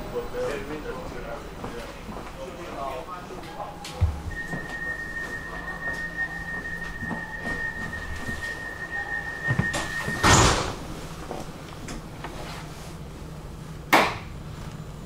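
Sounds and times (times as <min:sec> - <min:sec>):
high warning tone: 0:03.4 - 0:10.6
tram door slamming: 0:07.1 - 0:11.0.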